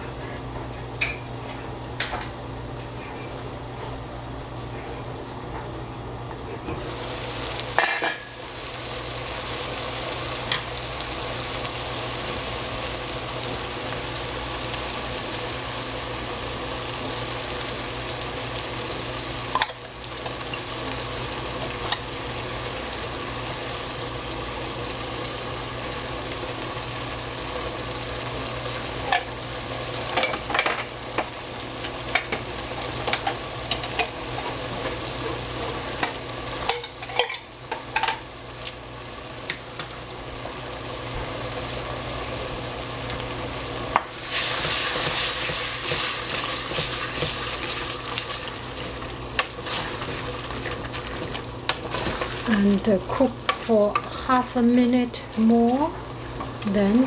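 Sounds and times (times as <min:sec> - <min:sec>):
food sizzling in a pan: 0:06.7 - 0:57.0
spatula knocking and scraping pan: 0:44.0 - 0:47.5.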